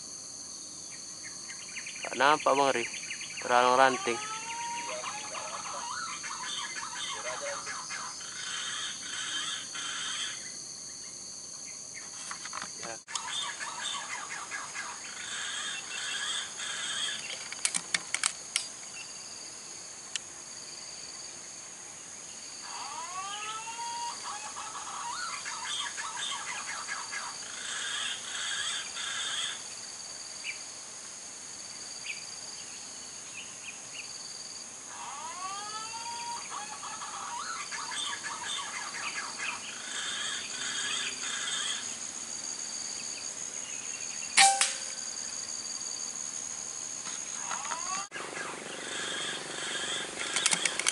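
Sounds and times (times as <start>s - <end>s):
high insect drone: 0.0s - 50.9s
pulsing insect chirp: 0.0s - 50.9s
birds chirping: 0.9s - 11.1s, 11.7s - 17.7s, 24.0s - 29.6s, 34.9s - 42.0s, 47.1s - 50.9s
sharp clicks: 17.3s - 18.7s, 44.4s - 44.9s, 50.2s - 50.9s.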